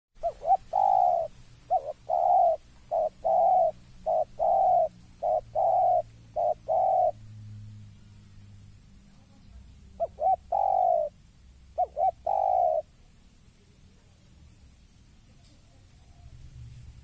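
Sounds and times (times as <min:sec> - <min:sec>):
dove cooing: 0:00.2 - 0:07.3, 0:09.9 - 0:13.0.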